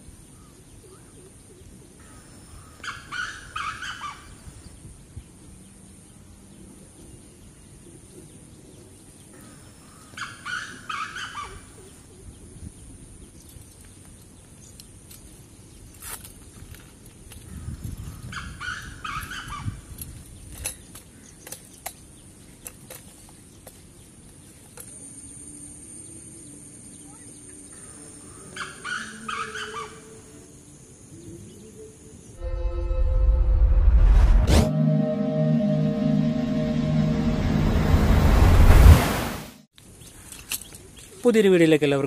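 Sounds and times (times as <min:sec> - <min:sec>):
bird calling: 0:00.3 - 0:04.6, 0:09.3 - 0:12.3, 0:17.5 - 0:22.7, 0:27.0 - 0:30.6.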